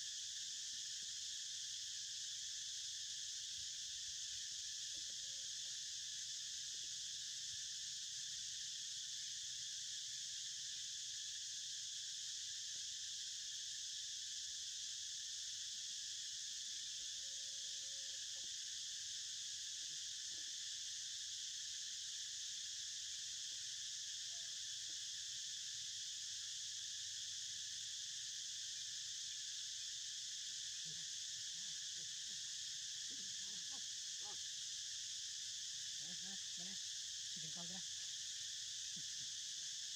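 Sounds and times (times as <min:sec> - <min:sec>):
insects chirring: 0:00.0 - 0:39.9.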